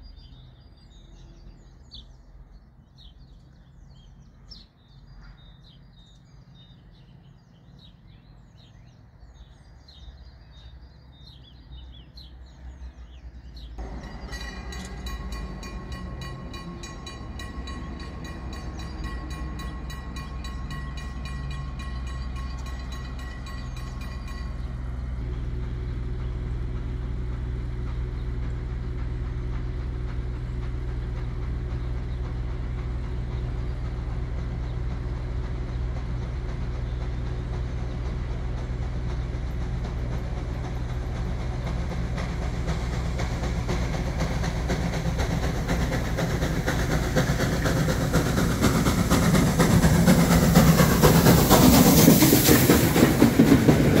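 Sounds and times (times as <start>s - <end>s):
birds chirping: 0.0s - 54.0s
steam train rumble: 0.0s - 54.0s
level-crossing bell ringing: 13.8s - 24.9s.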